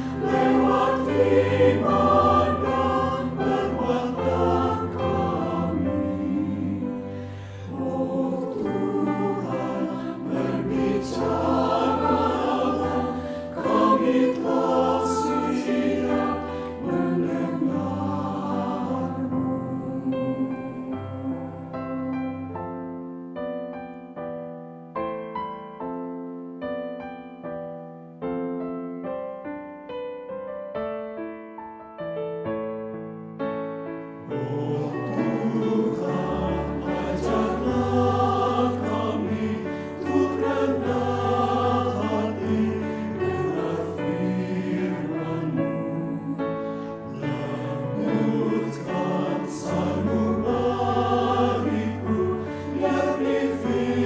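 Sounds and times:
mixed choir singing a hymn: 0.0 - 22.6, 34.2 - 54.0.

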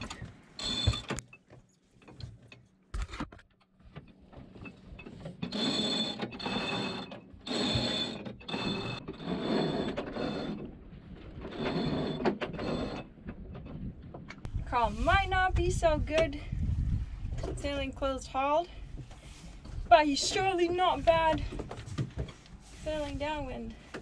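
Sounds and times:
whirring with high squeak: 5.5 - 10.6.

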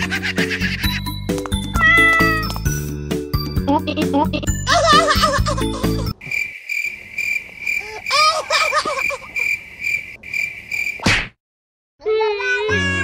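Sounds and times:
crickets chirping: 6.1 - 11.0.

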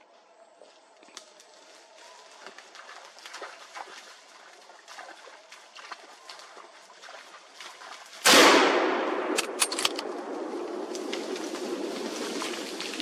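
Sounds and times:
rifle shot: 8.2 - 10.5
sharp clicks: 9.3 - 10.1.

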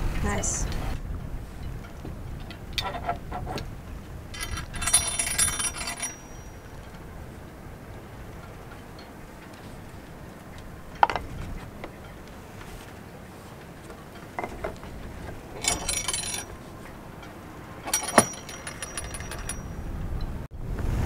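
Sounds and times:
metallic knocks: 1.9 - 3.7, 4.3 - 7.1, 10.9 - 12.1, 13.9 - 19.9
threaded steel bar clinking and rattling: 2.4 - 3.6, 4.3 - 7.1, 10.9 - 11.3, 13.9 - 16.6, 17.2 - 19.8.

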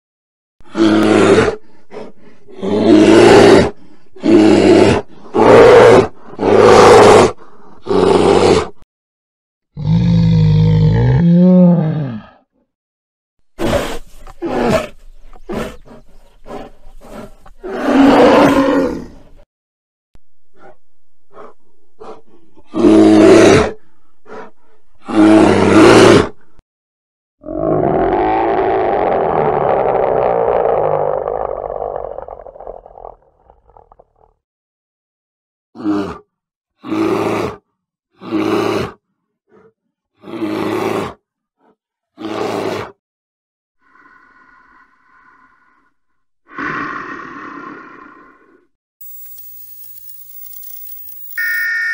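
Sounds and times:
bear grunting and huffing: 0.7 - 8.7, 13.6 - 19.2, 20.5 - 25.8
bear roaring: 0.7 - 8.8, 9.8 - 12.4, 13.6 - 19.2, 20.6 - 26.4, 27.4 - 33.8, 46.5 - 48.6.

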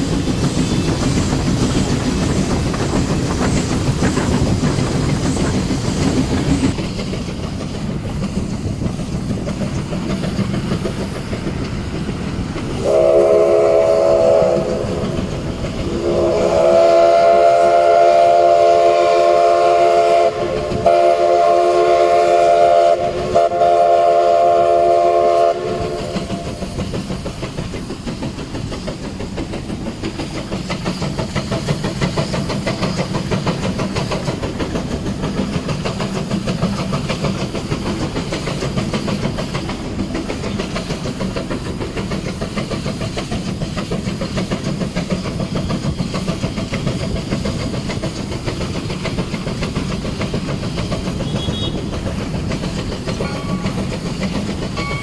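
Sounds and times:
train clattering on rails: 0.0 - 55.0
steam locomotive whistle: 12.8 - 15.2, 15.8 - 26.7, 51.1 - 52.0, 54.7 - 55.0.

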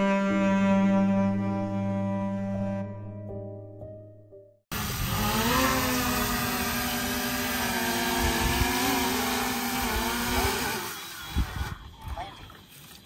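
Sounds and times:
motor drone: 0.0 - 2.9, 4.7 - 12.0.

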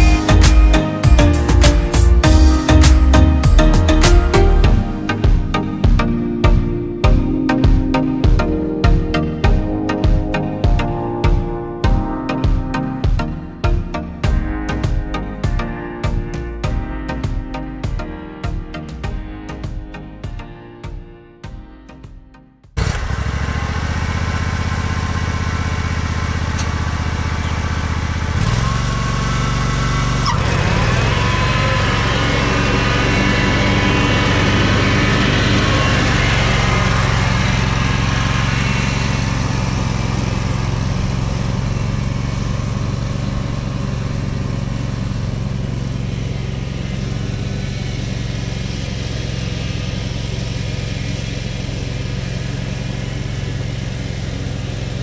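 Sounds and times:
ride-on mower engine running: 0.0 - 11.5, 22.8 - 55.0.

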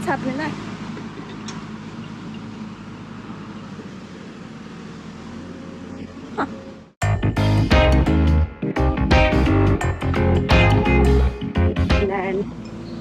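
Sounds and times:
front loader engine humming: 0.0 - 13.0
background music: 7.0 - 12.4.

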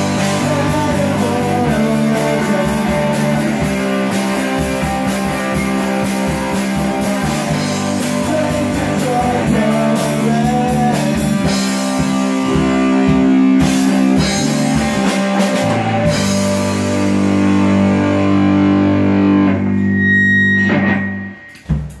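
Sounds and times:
drum kit drumming: 0.0 - 18.7, 21.5 - 22.0
rock band playing: 0.0 - 22.0
held guitar chord ringing: 15.8 - 21.7.

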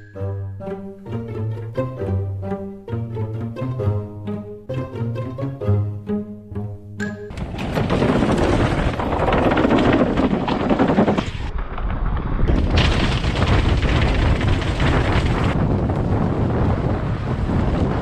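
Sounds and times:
bike rattling down concrete stairs: 7.3 - 11.6, 12.6 - 15.6
wind rumble on microphone: 7.3 - 18.0.

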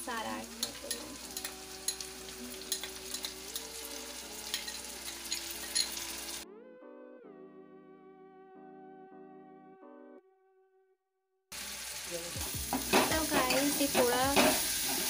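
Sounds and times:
onions sizzling in oil: 0.0 - 6.4, 11.5 - 15.0
soft background music: 0.0 - 10.8, 11.9 - 15.0
spatula against pan: 12.7 - 15.0.

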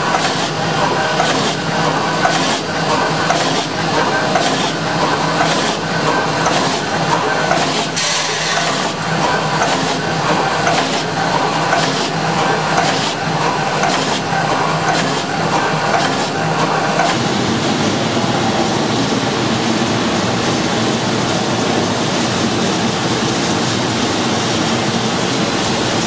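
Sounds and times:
regular machine knocks: 0.0 - 17.2
machine mechanical clatter: 0.0 - 17.8.

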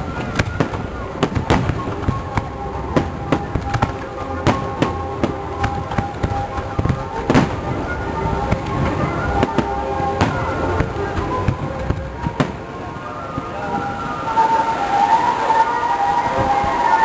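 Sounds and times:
firework shells bursting: 0.0 - 7.8
music playing: 0.0 - 17.0.

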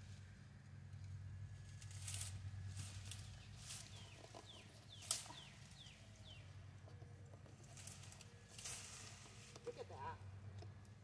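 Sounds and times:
low steady hum: 0.0 - 11.0
dry vines rustling and snapping: 1.0 - 6.3, 7.0 - 10.0
bird chirping: 3.3 - 7.3.

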